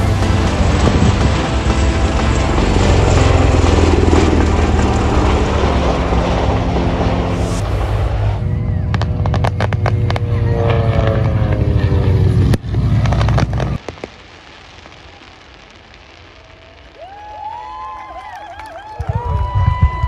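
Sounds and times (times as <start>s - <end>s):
aircraft rotor and engine noise: 0.0s - 13.8s
low drone with falling tone: 0.0s - 13.8s
fireworks bangs and crackles: 0.0s - 20.0s.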